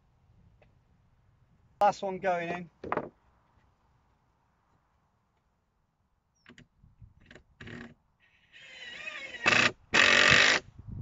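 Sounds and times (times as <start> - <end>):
cordless drill whining: 7.6 - 10.7.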